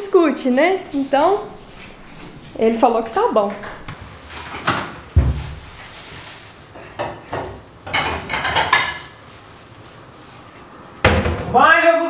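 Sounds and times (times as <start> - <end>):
dishes and cutlery clattering: 6.8 - 9.2.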